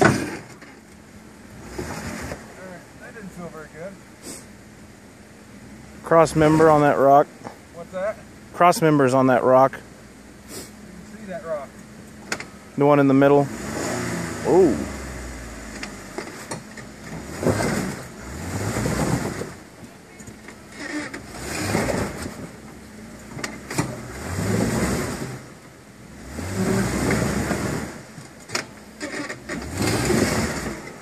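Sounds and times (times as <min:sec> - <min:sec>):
car engine revving: 0:05.6 - 0:07.1, 0:10.5 - 0:31.0.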